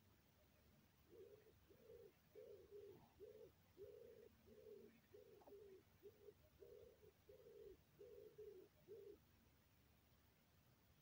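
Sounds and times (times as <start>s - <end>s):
soft low cooing: 1.1s - 9.2s.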